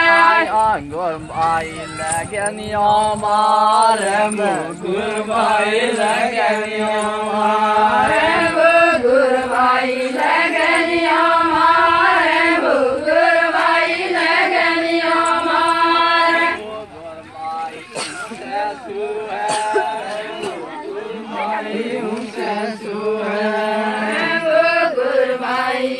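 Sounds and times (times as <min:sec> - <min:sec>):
group singing in unison: 0:00.0 - 0:00.8, 0:01.4 - 0:25.9.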